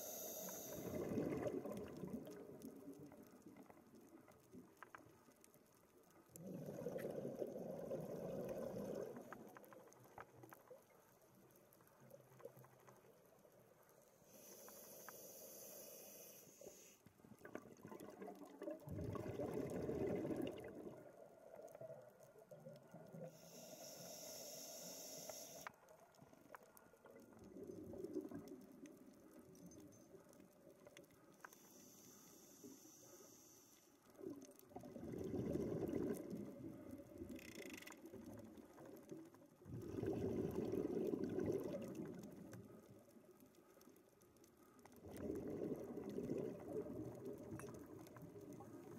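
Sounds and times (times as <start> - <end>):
scuba regulator inhalation hiss: 0.0 - 1.0, 14.2 - 17.0, 23.3 - 25.7
exhaust bubbles underwater: 0.8 - 3.2, 6.4 - 9.5, 17.4 - 21.8, 34.2 - 37.2, 39.6 - 42.6, 45.0 - 48.9.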